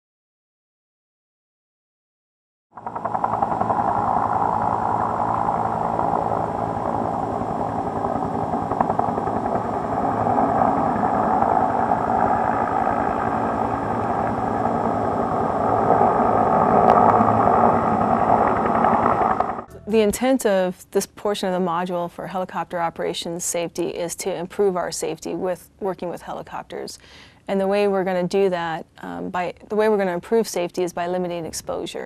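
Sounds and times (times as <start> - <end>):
helicopter rotor and engine: 2.8 - 19.7.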